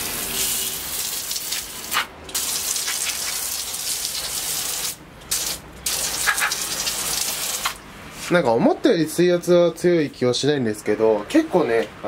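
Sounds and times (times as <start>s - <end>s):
pressure washer water jet spraying: 0.0s - 7.8s.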